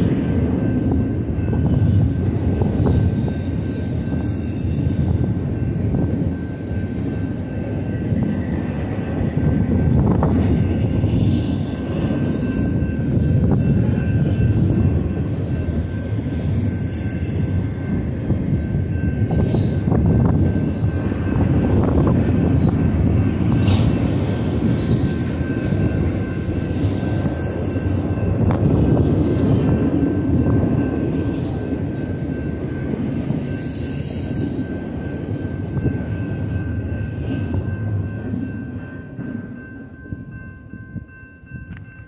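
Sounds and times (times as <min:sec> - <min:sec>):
train wheels rumbling on rail: 0:00.0 - 0:42.0
high wheel squeal: 0:33.0 - 0:37.9.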